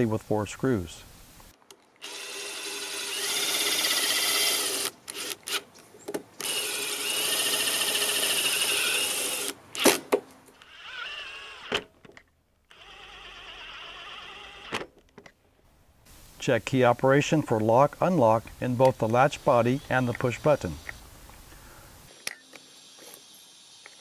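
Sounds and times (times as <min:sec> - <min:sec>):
cordless driver running screws: 0:02.0 - 0:05.7, 0:06.4 - 0:10.0, 0:10.6 - 0:11.9, 0:12.7 - 0:14.9.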